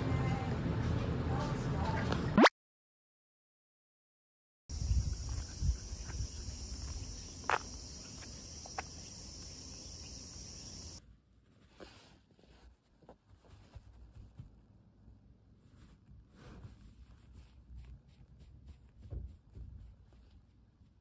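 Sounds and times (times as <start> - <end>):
wind or handling rumble: 4.7 - 8.4
insects droning: 4.7 - 11.0
footsteps: 4.8 - 9.5
hand stroking dog's fur: 15.6 - 21.0.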